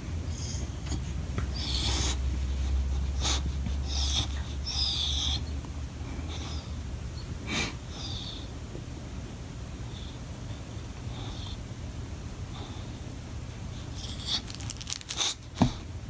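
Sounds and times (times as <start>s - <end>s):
dog whining: 0.4s - 7.3s, 7.9s - 8.5s, 13.9s - 14.6s.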